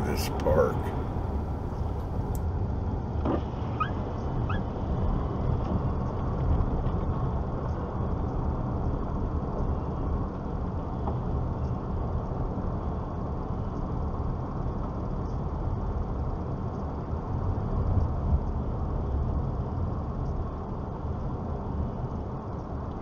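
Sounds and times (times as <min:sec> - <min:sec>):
car engine and road rumble: 0:00.0 - 0:02.4.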